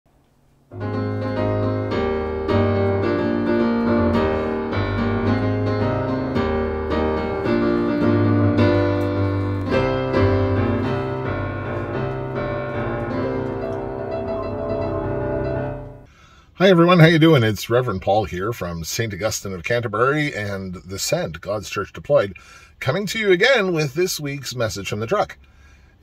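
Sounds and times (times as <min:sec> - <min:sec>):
piano intro music: 0:00.7 - 0:16.1
steady low bass: 0:00.8 - 0:16.1.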